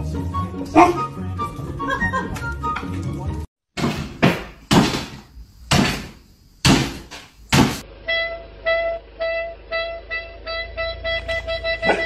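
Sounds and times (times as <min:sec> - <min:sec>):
dull thumps: 0:03.8 - 0:07.8.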